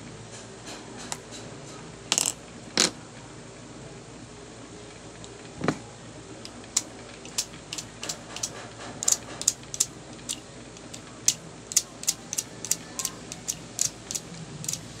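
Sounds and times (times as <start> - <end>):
metal tool clicking: 6.8 - 14.8.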